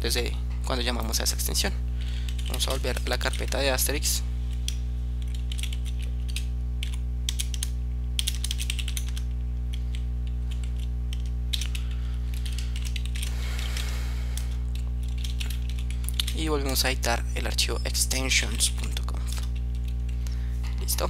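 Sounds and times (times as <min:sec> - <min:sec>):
low electrical hum: 0:00.0 - 0:21.0
keyboard typing: 0:02.3 - 0:03.7, 0:04.6 - 0:13.8, 0:14.4 - 0:16.4.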